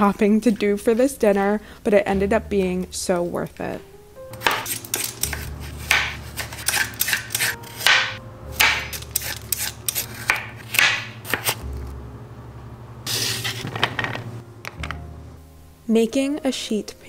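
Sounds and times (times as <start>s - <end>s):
knife chopping on plastic board: 4.4s - 11.6s.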